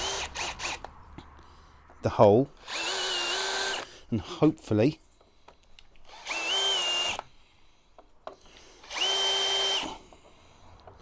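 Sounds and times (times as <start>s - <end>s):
power drill whining: 0.0s - 0.9s, 2.6s - 4.0s, 6.0s - 7.5s, 8.2s - 10.9s.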